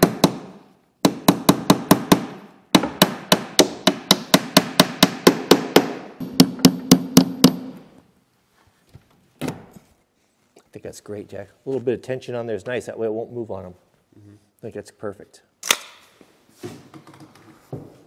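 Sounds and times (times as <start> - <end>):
hammer nailing plywood: 0.0 - 7.8.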